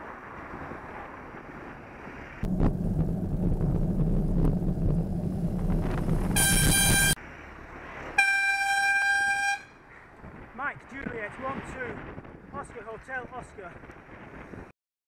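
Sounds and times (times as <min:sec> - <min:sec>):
truck engine and road rumble: 0:00.0 - 0:14.7
high-pitched truck horn blast: 0:06.3 - 0:07.2, 0:08.2 - 0:09.8.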